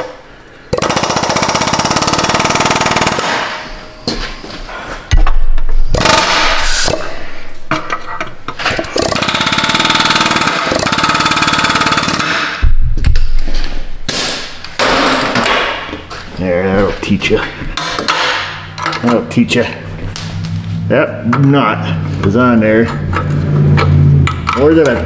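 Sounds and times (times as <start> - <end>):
pneumatic air hammer hammering: 0.7 - 3.8, 5.1 - 12.7.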